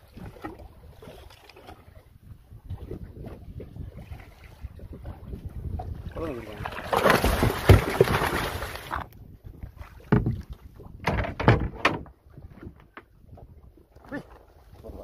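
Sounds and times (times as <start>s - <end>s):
water splashing and rushing: 0.0s - 15.0s
knocks against wooden hull: 6.8s - 9.0s, 10.0s - 13.1s.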